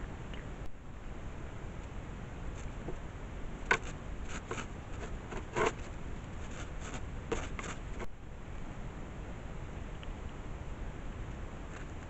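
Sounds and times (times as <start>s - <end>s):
steady low hiss: 0.0s - 12.0s
scratching and rustling clicks: 3.6s - 8.1s.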